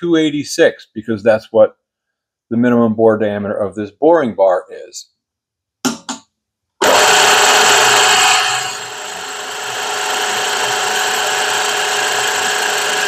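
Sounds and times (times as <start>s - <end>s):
milling machine spindle whine: 6.8s - 13.0s.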